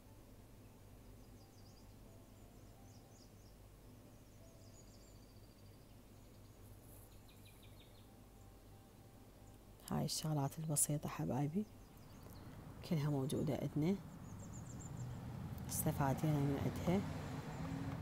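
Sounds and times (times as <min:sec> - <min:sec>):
faint high chirping: 0:00.0 - 0:09.6, 0:11.6 - 0:15.9
low steady hum: 0:00.0 - 0:18.0.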